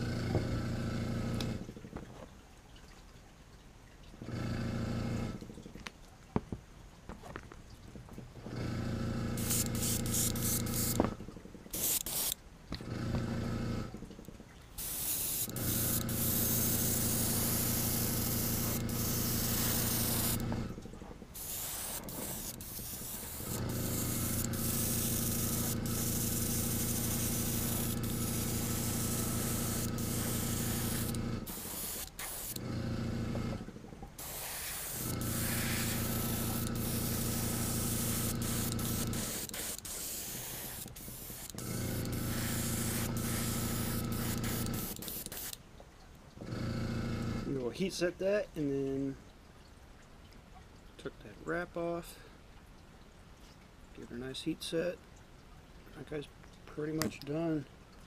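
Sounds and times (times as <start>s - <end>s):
air compressor humming: 8.5s - 45.6s, 46.4s - 47.6s
airbrush spraying in hissing bursts: 9.4s - 11.1s, 11.7s - 12.4s, 14.8s - 20.6s, 21.4s - 32.8s, 34.2s - 45.6s.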